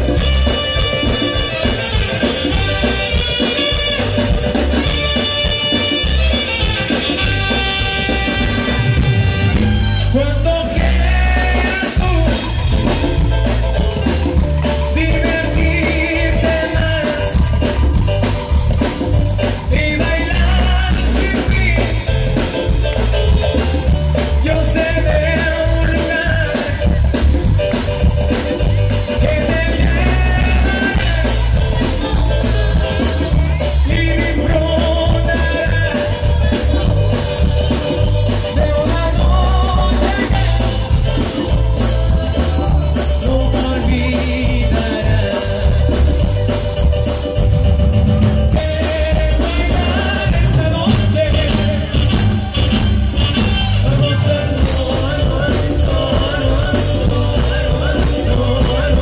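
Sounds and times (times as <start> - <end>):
saxophones: 0.0 - 11.0, 51.2 - 59.0
person singing: 0.0 - 47.5, 48.1 - 59.0
heavy bass beat: 0.0 - 59.0
live band over loud speakers: 0.0 - 59.0.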